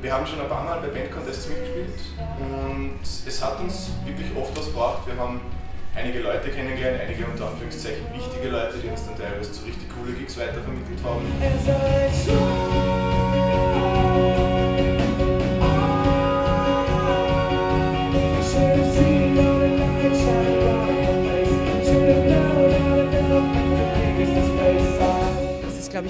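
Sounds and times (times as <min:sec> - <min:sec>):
band playing live: 0:10.7 - 0:26.0
man singing long notes: 0:11.2 - 0:25.8.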